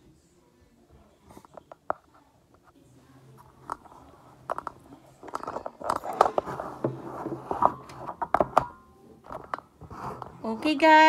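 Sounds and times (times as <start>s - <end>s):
device handling clicks and knocks: 4.5s - 9.6s.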